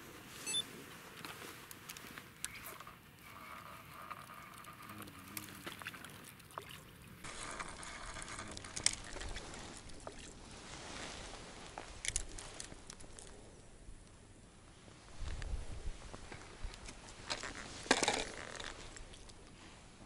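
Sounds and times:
fishing reel and rod handling: 0:01.2 - 0:06.3, 0:07.3 - 0:10.2, 0:11.8 - 0:13.3, 0:16.8 - 0:19.4
water splashing: 0:03.2 - 0:10.7.

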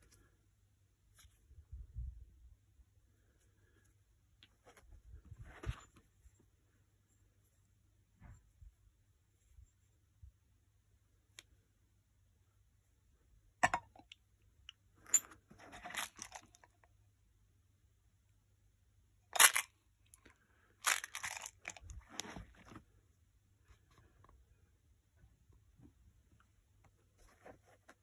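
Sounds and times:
scraping and rustling: 0:20.8 - 0:23.0, 0:27.0 - 0:28.0.

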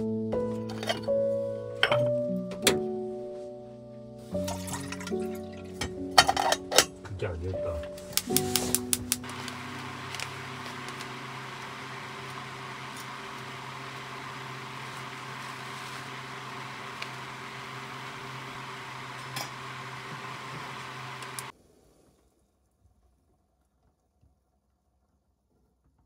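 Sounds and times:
appliance motor humming: 0:07.9 - 0:21.5.

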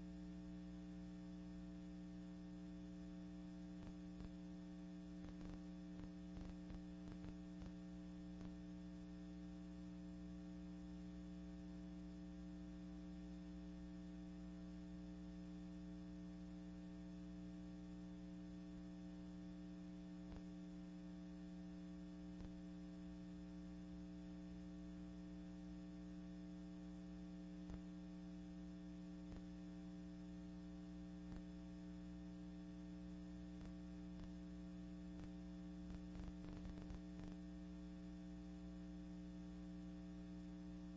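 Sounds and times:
electrical mains hum: 0:00.0 - 0:40.9.

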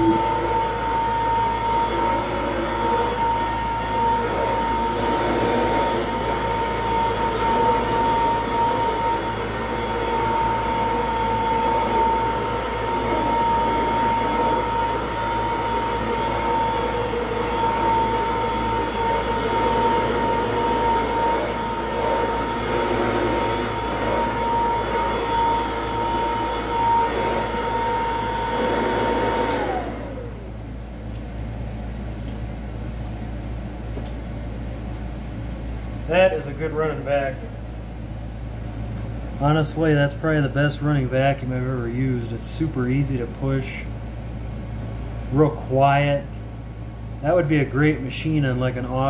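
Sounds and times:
vacuum cleaner motor whining: 0:00.0 - 0:30.8
vacuum cleaner switch click: 0:29.4 - 0:29.7.

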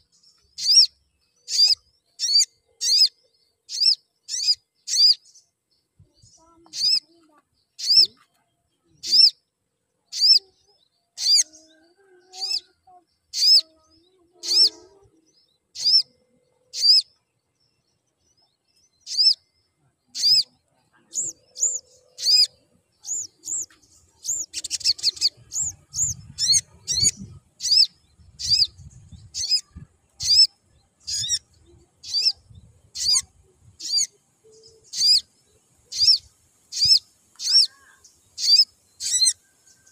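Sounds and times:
bird giving sharp high chirps: 0:00.5 - 0:03.1, 0:03.7 - 0:05.3, 0:07.7 - 0:08.2, 0:09.0 - 0:09.4, 0:10.1 - 0:10.5, 0:11.2 - 0:11.6, 0:15.7 - 0:17.1, 0:19.0 - 0:19.4, 0:20.1 - 0:20.5, 0:21.1 - 0:34.1, 0:34.9 - 0:35.3, 0:35.9 - 0:39.4.

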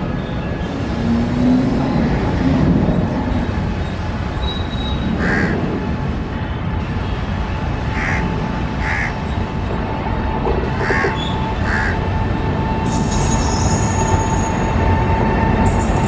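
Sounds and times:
train rumbling with whine: 0:00.0 - 0:16.0
crows cawing: 0:05.2 - 0:05.6, 0:08.0 - 0:08.2, 0:08.8 - 0:09.2, 0:10.8 - 0:12.0
high-pitched squeal: 0:12.5 - 0:16.0.

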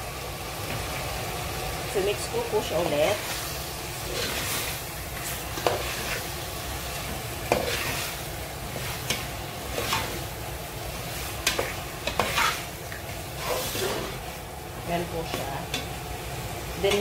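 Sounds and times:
chicken sizzling in a pot: 0:00.0 - 0:17.0
utensil scraping and knocking pot: 0:04.1 - 0:06.3, 0:07.0 - 0:10.2, 0:11.3 - 0:12.7.

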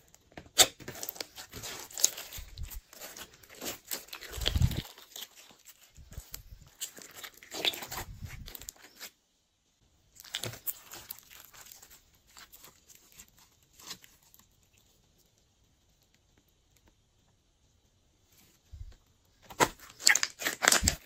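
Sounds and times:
slime squished by hand: 0:00.5 - 0:09.1, 0:10.2 - 0:13.2, 0:19.5 - 0:21.0.

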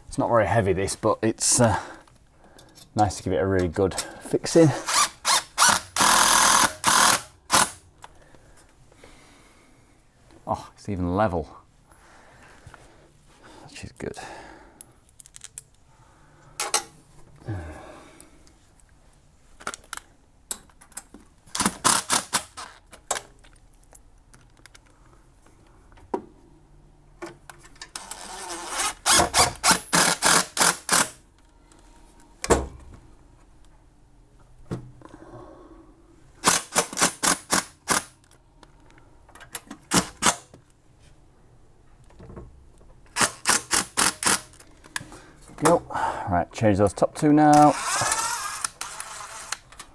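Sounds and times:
drill driver driving screws: 0:04.8 - 0:07.8, 0:21.6 - 0:22.8, 0:28.0 - 0:31.2, 0:36.4 - 0:38.2, 0:43.1 - 0:44.6, 0:47.5 - 0:49.6.

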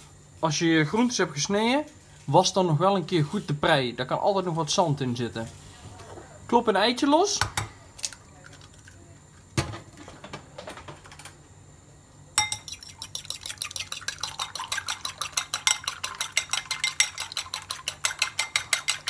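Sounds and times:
fork clinking against bowl: 0:12.4 - 0:19.0.

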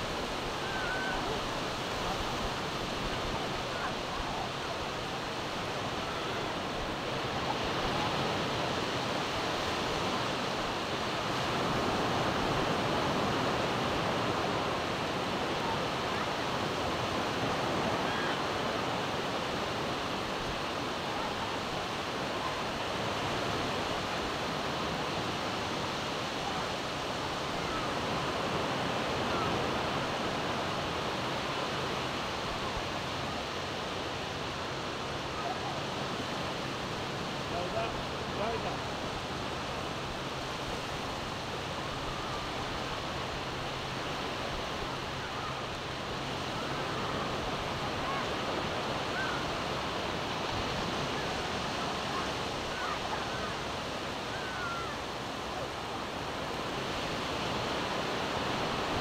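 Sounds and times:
surf washing onto sandy beach: 0:00.0 - 0:59.0.

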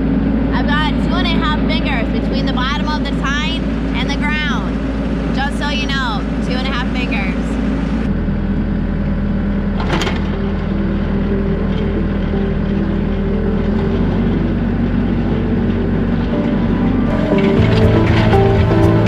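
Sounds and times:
tractor engine running: 0:00.0 - 0:19.0.

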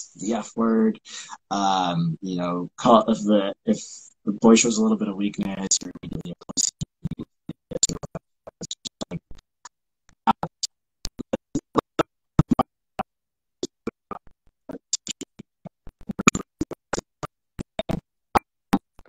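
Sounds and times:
garbled broken-up speech: 0:01.5 - 0:06.8.

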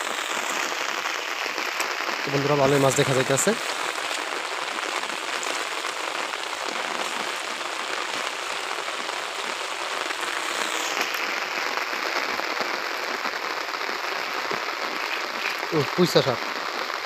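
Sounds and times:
heavy rain hiss: 0:00.0 - 0:17.0.

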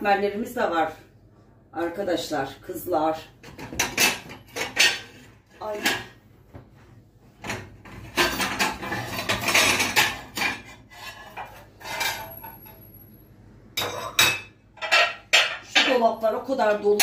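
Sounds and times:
dishes and cutlery clattering: 0:03.4 - 0:06.2, 0:07.4 - 0:12.9, 0:13.8 - 0:16.1.

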